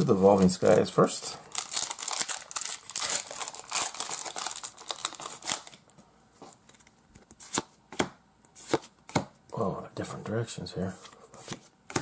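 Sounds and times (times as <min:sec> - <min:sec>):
foil wrapper crinkling and tearing: 0:01.5 - 0:05.9.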